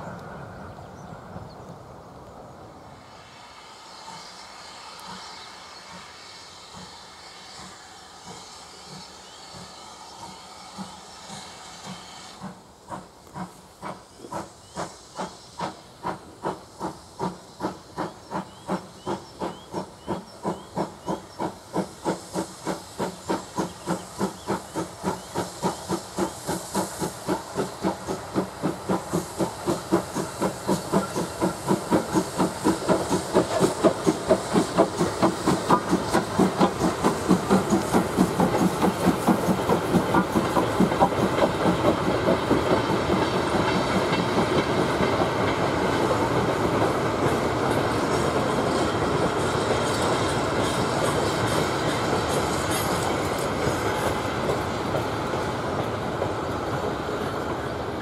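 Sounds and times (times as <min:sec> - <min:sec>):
steam hiss: 0:00.0 - 0:58.0
steam locomotive chuffing: 0:02.9 - 0:58.0.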